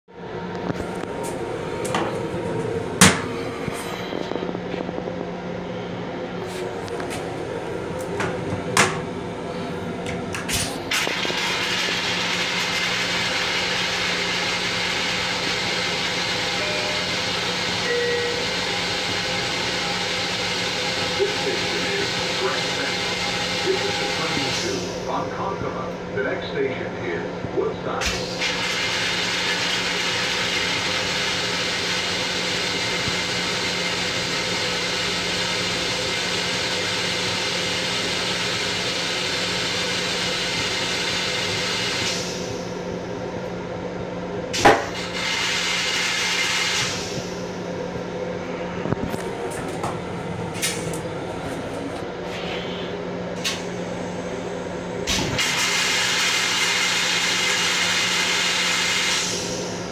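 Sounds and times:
constant low hum: 0.1s - 28.7s, 29.5s - 45.1s, 46.8s - 55.4s
train rushing noise: 0.7s - 25.9s.

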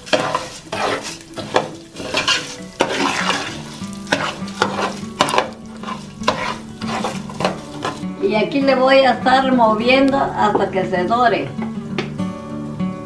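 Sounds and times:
spoon scraping pot: 0.0s - 8.1s
rice sizzling in oil: 0.0s - 8.4s.

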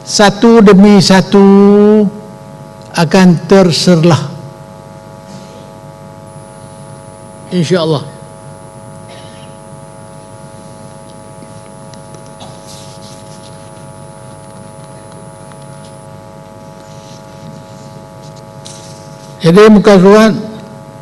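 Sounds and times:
electrical mains hum: 0.0s - 21.0s
faint rustles and clicks: 10.5s - 19.4s.

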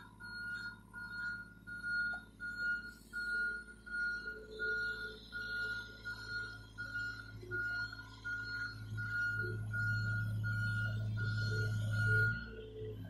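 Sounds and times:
diesel engine: 0.0s - 13.0s
excavator alarm beeping: 0.0s - 13.0s.

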